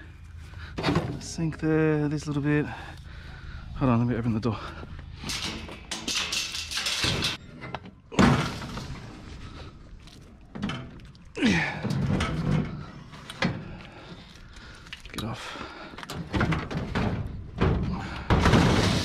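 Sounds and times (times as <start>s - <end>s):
rattling and scraping: 0.3s - 19.0s
knocks and clatter: 5.1s - 9.1s, 16.0s - 19.0s.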